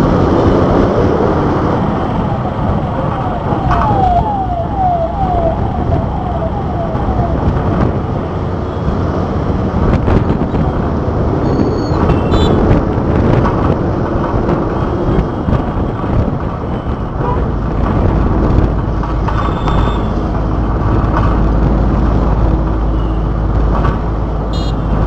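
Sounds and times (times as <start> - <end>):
vehicle engine and road rumble: 0.0 - 25.0.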